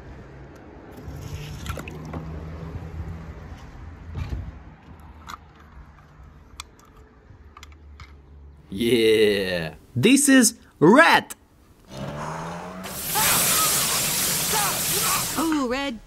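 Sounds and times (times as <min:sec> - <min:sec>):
toy truck clicks and taps: 0:05.2 - 0:08.2.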